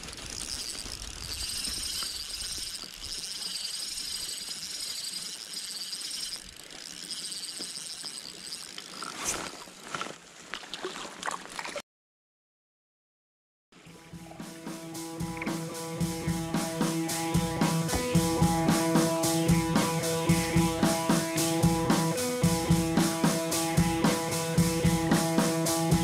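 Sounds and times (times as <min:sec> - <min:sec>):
fishing reel whirring: 0:00.0 - 0:09.6, 0:15.0 - 0:26.0.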